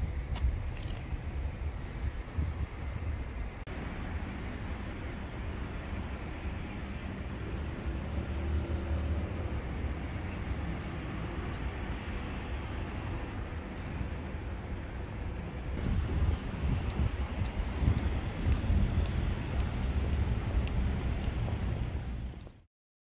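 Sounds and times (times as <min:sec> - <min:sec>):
low rumble of road traffic: 0:00.0 - 0:22.6.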